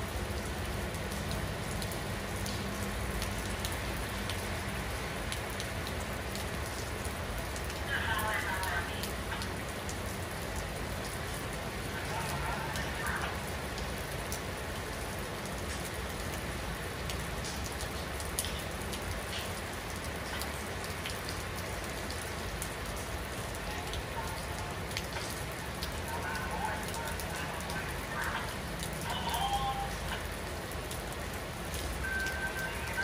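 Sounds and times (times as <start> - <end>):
rain hissing on stone and trees: 0.0 - 33.0
raindrops spattering: 0.0 - 33.0.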